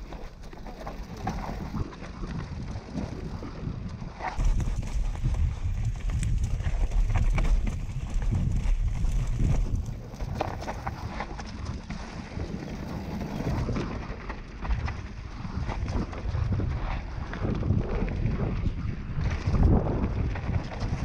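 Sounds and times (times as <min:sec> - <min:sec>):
tyres rumbling on dirt: 0:04.3 - 0:15.6
mountain bike clattering: 0:04.3 - 0:15.9.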